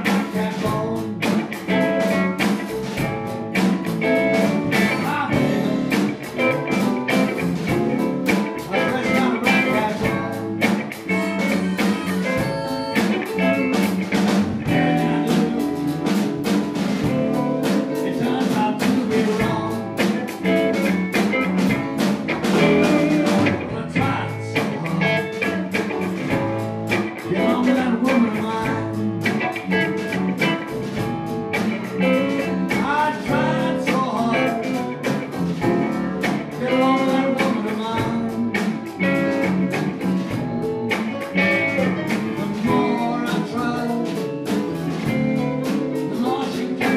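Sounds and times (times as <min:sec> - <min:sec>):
live blues band: 0:00.0 - 0:46.9.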